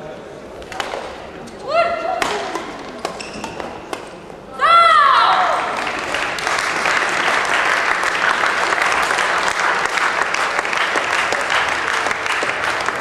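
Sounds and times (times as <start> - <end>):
crowd applause: 5.5 - 13.0.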